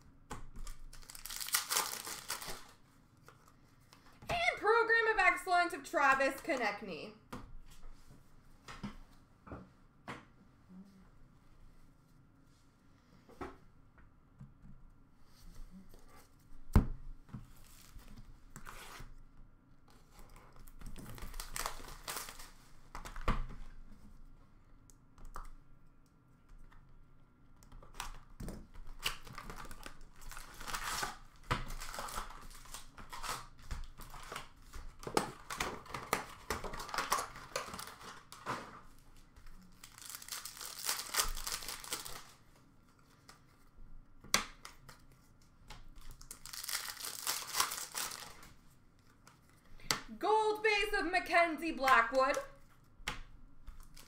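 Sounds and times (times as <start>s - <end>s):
plastic wrappers tearing and crinkling: 0.6s - 2.8s, 20.6s - 23.2s, 28.9s - 42.4s, 46.0s - 48.6s.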